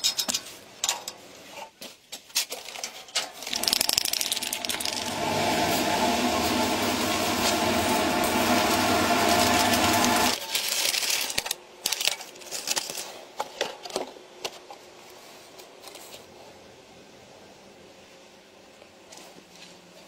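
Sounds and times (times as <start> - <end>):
fan motor humming: 3.5 - 10.4
plastic blister pack crinkling: 9.5 - 13.2
cardboard clicks and rustles: 10.4 - 16.3.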